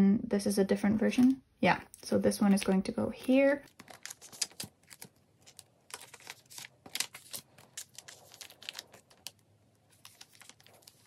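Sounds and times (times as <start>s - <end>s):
plastic crinkling and scraping: 3.5s - 11.0s.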